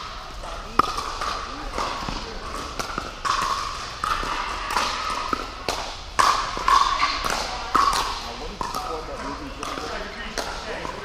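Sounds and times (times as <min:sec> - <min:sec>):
paddles hitting plastic ball: 0:00.4 - 0:11.0.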